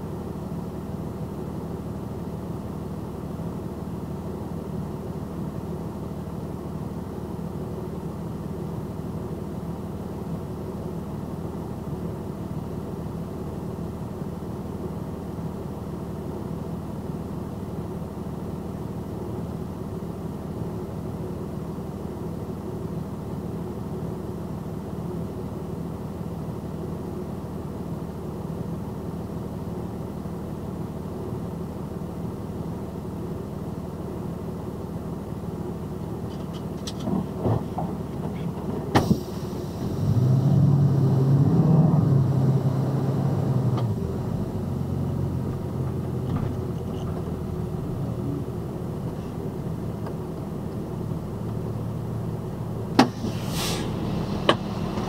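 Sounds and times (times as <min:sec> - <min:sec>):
truck engine idling: 0:43.9 - 0:55.0.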